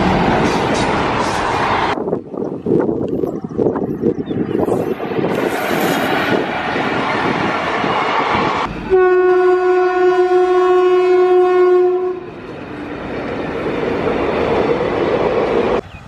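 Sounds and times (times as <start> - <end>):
train passing: 0.0 - 16.0
train horn: 8.7 - 12.4.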